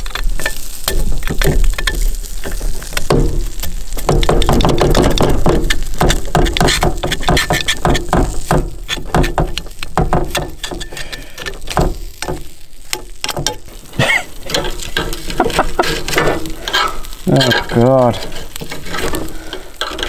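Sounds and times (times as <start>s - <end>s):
metal spoon scraping metal plates: 6.4s - 8.1s, 14.4s - 20.0s.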